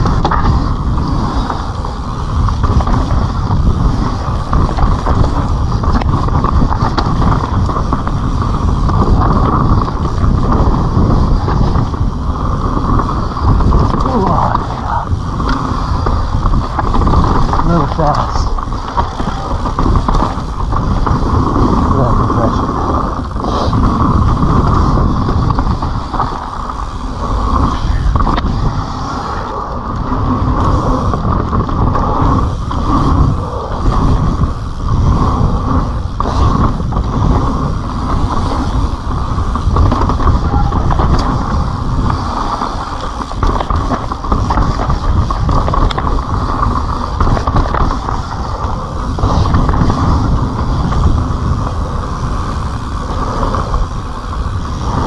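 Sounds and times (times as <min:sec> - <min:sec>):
bike knocking and rattling: 0:00.0 - 0:28.8, 0:29.4 - 0:55.0
bicycle tyre and air rushing: 0:00.0 - 0:55.0.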